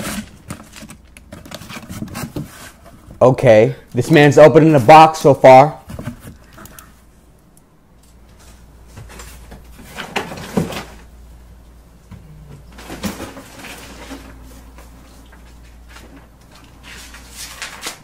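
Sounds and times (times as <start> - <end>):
cardboard flaps and paper rustling: 0.0 - 3.2, 12.7 - 18.0.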